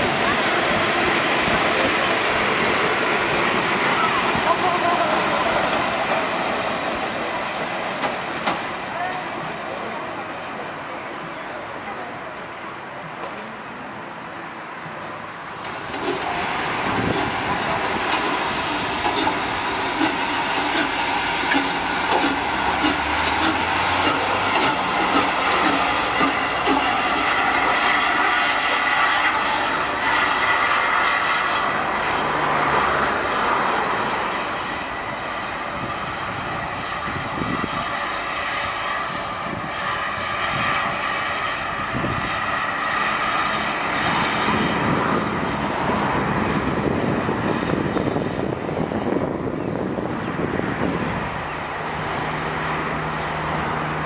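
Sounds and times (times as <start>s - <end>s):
steam hissing: 15.4s - 46.6s
wheels clanking over rails: 15.6s - 30.3s.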